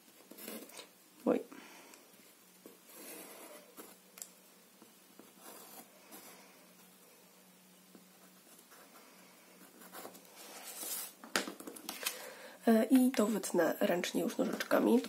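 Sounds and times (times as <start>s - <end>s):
pencil scratching on paper: 5.2s - 6.3s.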